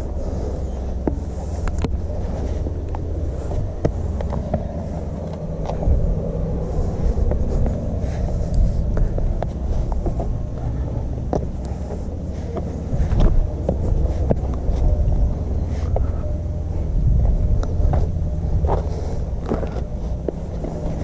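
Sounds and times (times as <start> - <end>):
wind rumbling on microphone: 0.0 - 21.0
footsteps and taps on rock: 2.9 - 6.0, 8.4 - 16.3, 17.6 - 21.0.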